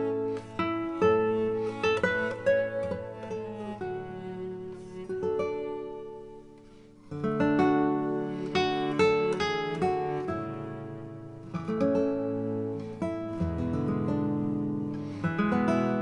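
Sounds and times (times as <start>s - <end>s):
acoustic guitar music: 0.0s - 16.0s.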